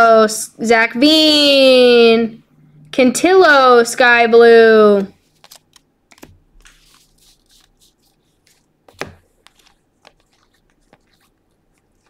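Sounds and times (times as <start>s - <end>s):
cards flipping swishes and clicks: 5.1s - 12.0s.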